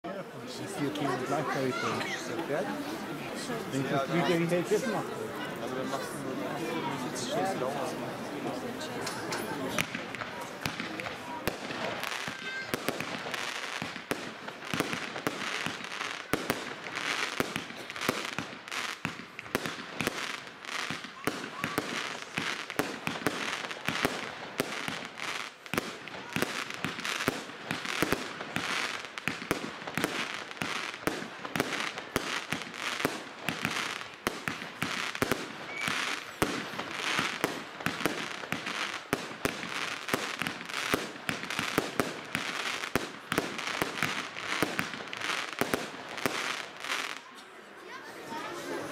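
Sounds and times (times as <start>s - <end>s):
firework stars crackling: 9.0s - 47.3s
firework bangs: 9.7s - 47.2s.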